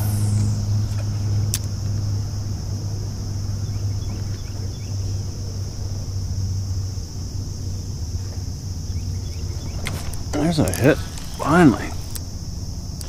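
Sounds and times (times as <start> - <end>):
high drone: 0.0 - 8.0, 9.2 - 12.6
electric motor humming: 9.4 - 13.0.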